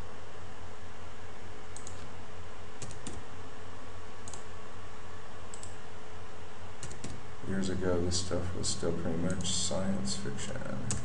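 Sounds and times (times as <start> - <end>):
low electrical hum and hiss: 0.0 - 11.0
computer keys clicking: 1.7 - 2.1, 2.8 - 3.2, 4.2 - 4.5, 5.5 - 5.8, 6.8 - 7.2, 9.2 - 9.6.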